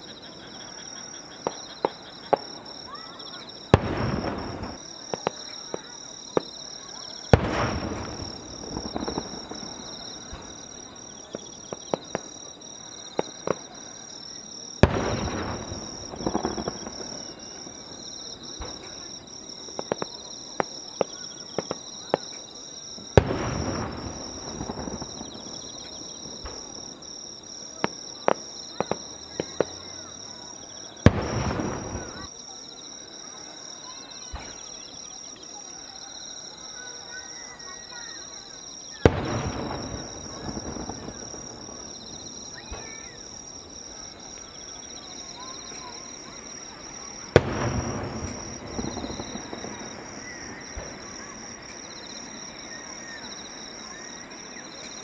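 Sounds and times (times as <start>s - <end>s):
firework crackling: 0.0s - 32.5s, 37.7s - 55.0s
insect trill: 0.0s - 55.0s
firework bangs with echoing rumble: 1.4s - 12.5s, 14.8s - 22.4s, 23.0s - 30.3s, 31.0s - 32.3s, 39.0s - 52.4s.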